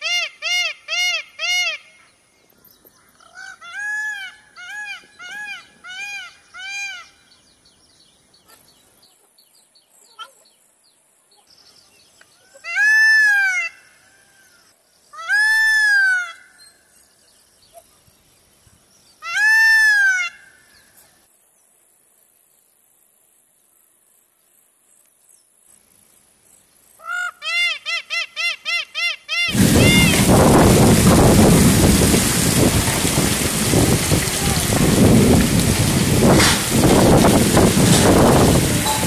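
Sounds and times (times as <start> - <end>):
peacock calling: 0.0 - 2.2, 3.0 - 7.3, 12.4 - 16.8, 19.2 - 21.0, 27.0 - 39.0.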